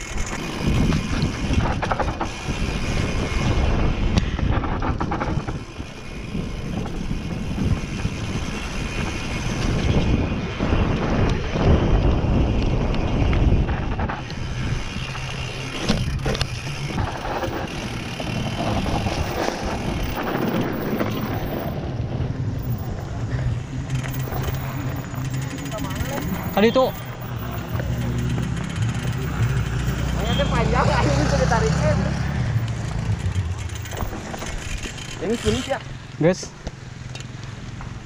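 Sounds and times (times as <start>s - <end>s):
wind rush on microphone: 0.0s - 30.2s
bike rattling and knocking: 0.0s - 38.0s.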